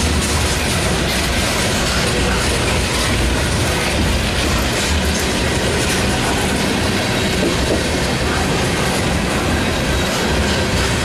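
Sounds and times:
freight train rolling past: 0.0s - 11.0s.

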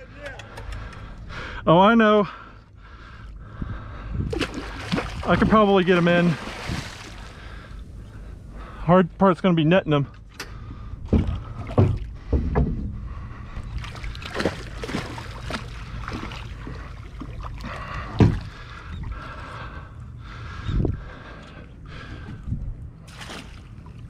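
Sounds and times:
water splashing and sloshing: 2.4s - 8.8s, 10.0s - 24.0s
dull knocks: 11.0s - 13.0s, 18.1s - 18.5s.

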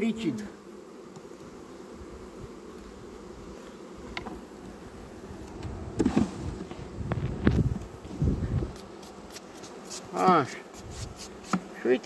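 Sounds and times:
honeybees buzzing: 0.0s - 12.0s
wooden knocks and scrapes: 5.6s - 7.6s.

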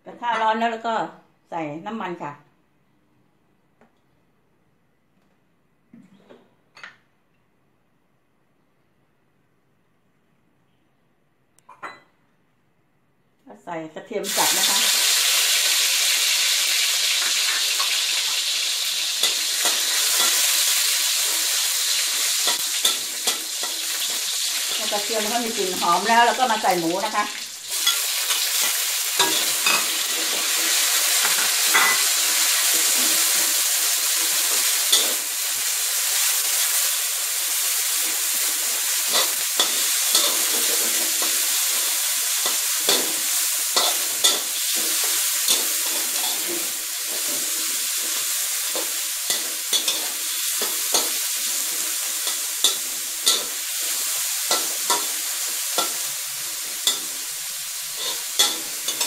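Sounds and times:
meat sizzling in hot oil: 14.2s - 59.0s
spatula scraping a wok: 16.3s - 27.1s, 27.7s - 37.0s, 37.8s - 59.0s.

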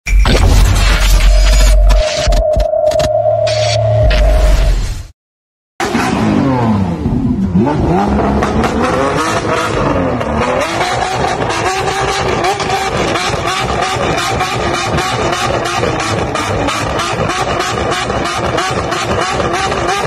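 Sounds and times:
sports car engine revving: 5.8s - 20.0s.

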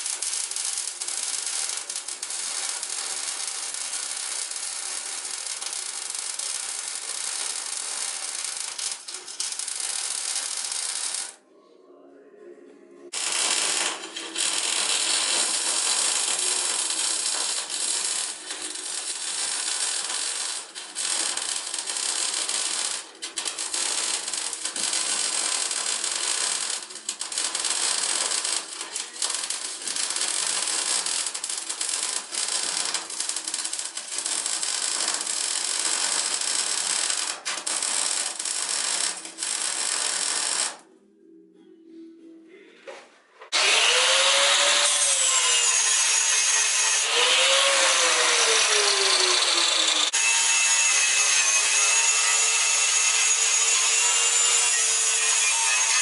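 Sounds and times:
welding arc hissing: 0.0s - 11.4s, 13.2s - 40.8s.

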